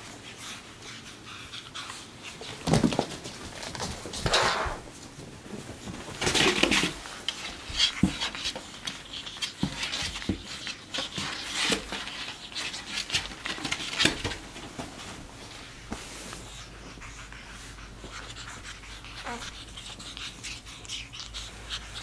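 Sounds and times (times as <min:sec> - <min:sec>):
bedding rustling: 0:02.0 - 0:20.7
monkeys scuffling: 0:02.3 - 0:17.0.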